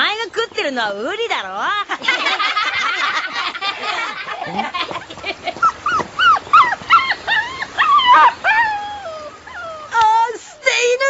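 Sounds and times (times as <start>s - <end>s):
dog whimpering and yelping: 5.6s - 10.0s.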